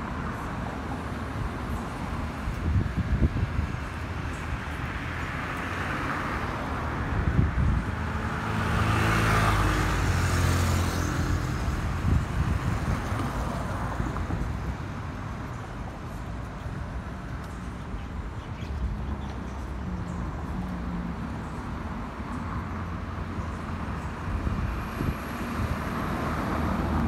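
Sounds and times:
wind thumps on microphone: 11.2s - 14.8s, 24.3s - 26.0s.

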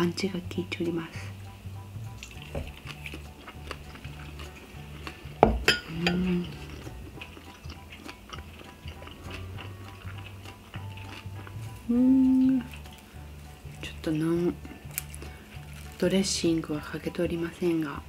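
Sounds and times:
background music with bass line: 0.0s - 18.0s
person humming while chewing: 2.2s - 16.0s
ceramic bowl knocking on wooden table: 5.4s - 5.8s.

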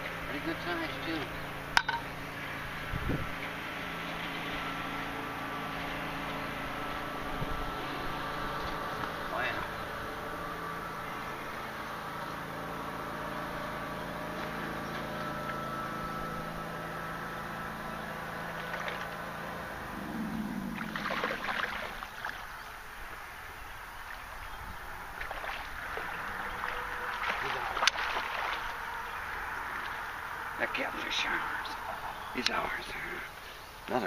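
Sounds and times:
steady motor hum: 0.0s - 34.0s
fish splashing: 19.8s - 22.8s, 25.1s - 30.2s.

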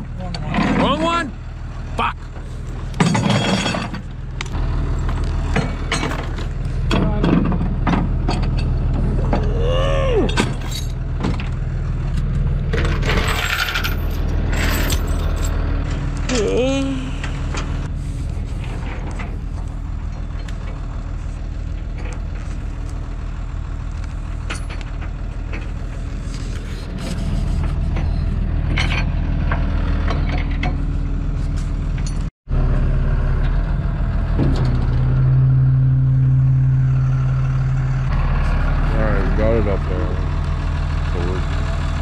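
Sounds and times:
truck engine running: 0.0s - 42.0s
metal clanks and clicks: 2.9s - 9.5s, 27.6s - 30.9s.

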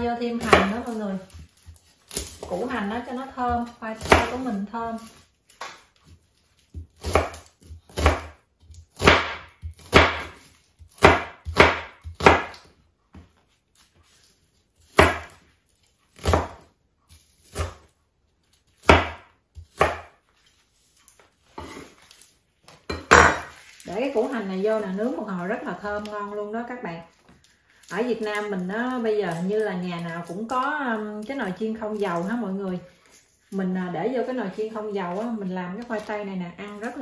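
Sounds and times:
knife chopping on wooden board: 0.4s - 2.5s, 3.5s - 5.8s, 6.6s - 13.3s, 14.0s - 15.4s, 16.1s - 17.9s, 18.8s - 20.2s.

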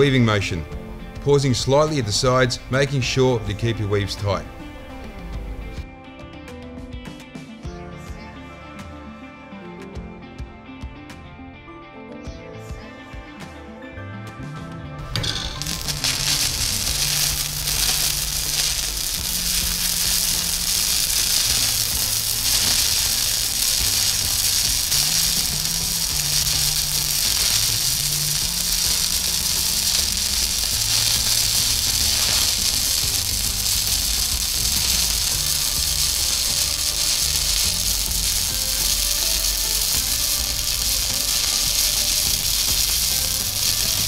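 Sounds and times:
welding arc crackling: 15.2s - 44.0s.

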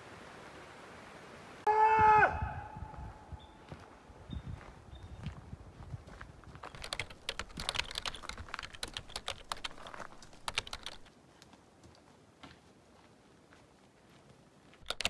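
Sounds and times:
keyboard key clicks: 6.7s - 11.1s.

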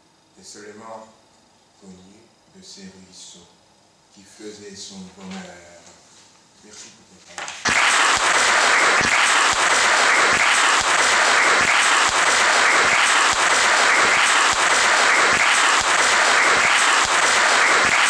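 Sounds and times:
sharp individual claps: 7.4s - 18.0s.

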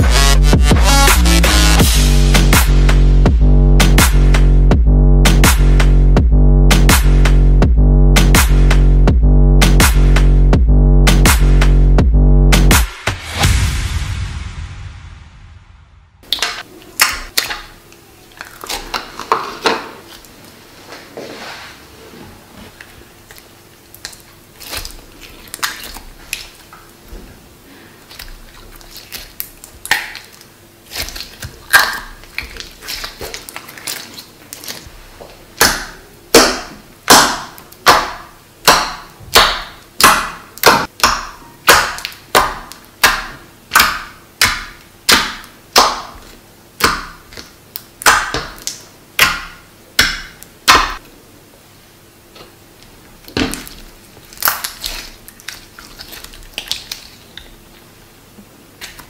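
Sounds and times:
slime squished by hand: 22.8s - 26.7s, 28.1s - 51.0s, 53.2s - 57.6s
slime popping: 28.1s - 34.9s, 35.6s - 51.0s, 53.2s - 57.5s.

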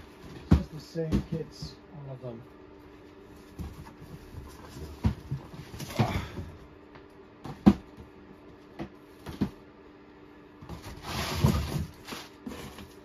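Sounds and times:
cardboard boxes rustling: 3.1s - 6.6s, 10.6s - 13.0s.

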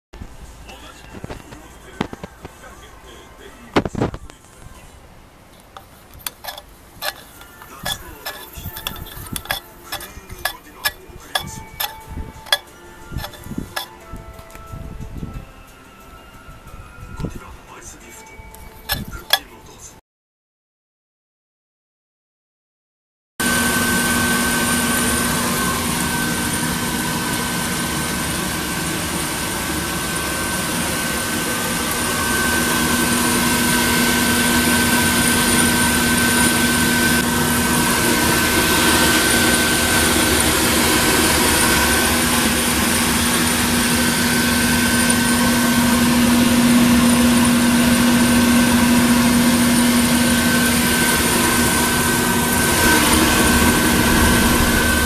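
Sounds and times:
coffee roaster blower humming: 5.7s - 14.5s, 23.4s - 55.0s.

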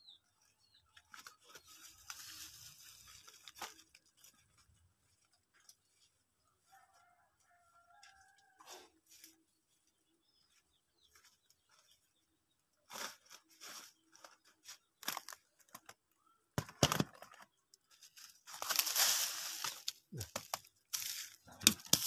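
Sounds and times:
dry leaves crackling and rustling: 0.9s - 6.0s, 12.9s - 15.4s, 17.9s - 22.0s.

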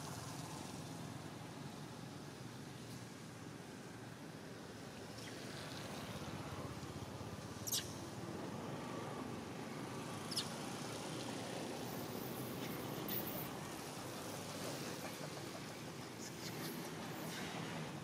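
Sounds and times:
background hiss: 0.0s - 18.0s
monkey squeaking calls: 7.6s - 8.0s, 10.3s - 10.6s.

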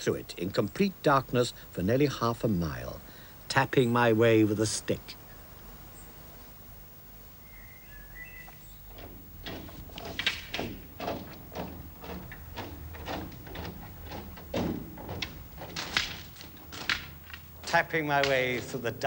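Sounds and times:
footsteps in a tunnel: 8.4s - 19.0s
walking stick taps: 8.5s - 19.0s.

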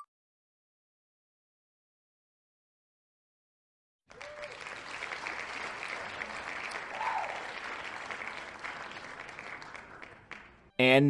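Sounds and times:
person whooping: 4.1s - 4.6s, 6.9s - 7.6s
crowd applause: 4.1s - 10.7s.

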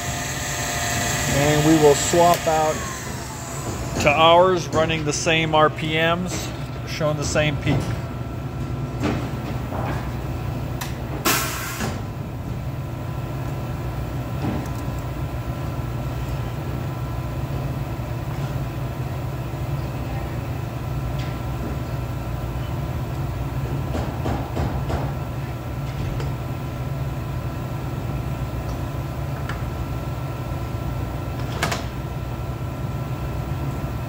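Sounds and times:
low machine hum: 0.0s - 11.3s.

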